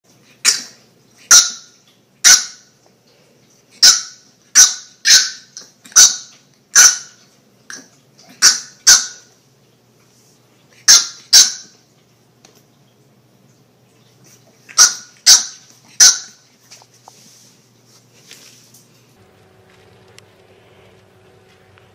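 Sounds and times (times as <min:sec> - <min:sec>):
puppy yapping: 0:00.4 - 0:02.7, 0:03.8 - 0:09.3, 0:10.8 - 0:11.8, 0:14.7 - 0:16.4.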